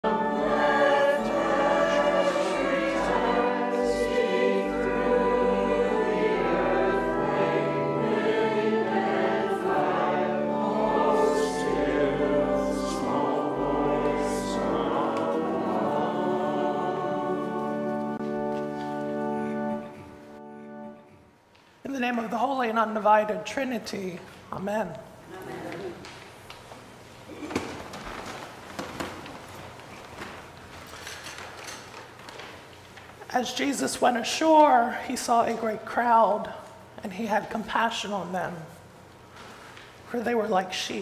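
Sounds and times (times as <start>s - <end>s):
choir singing held chords: 0.0s - 21.4s.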